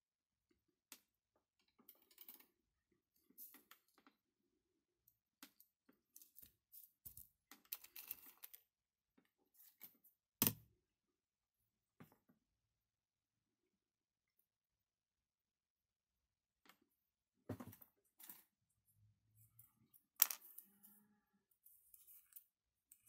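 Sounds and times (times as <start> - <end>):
small parts and tools clicking: 0.9 - 2.6, 5.0 - 10.6, 18.0 - 23.0.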